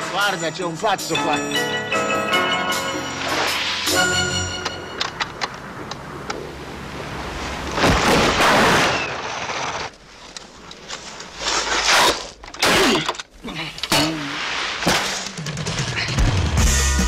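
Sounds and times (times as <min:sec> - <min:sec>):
rushing whooshes of skis and snow: 0:03.0 - 0:04.6, 0:05.6 - 0:10.2, 0:14.3 - 0:14.9
sharp cracks: 0:07.6 - 0:16.0.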